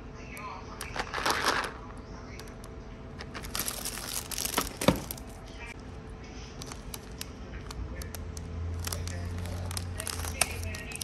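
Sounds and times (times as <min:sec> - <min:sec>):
plastic bag crinkling: 0:03.2 - 0:05.5, 0:06.6 - 0:11.0.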